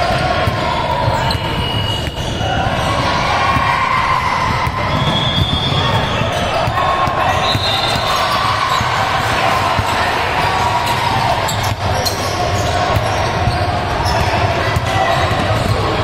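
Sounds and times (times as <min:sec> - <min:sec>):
basketball bouncing on gym floor: 0:04.4 - 0:16.0.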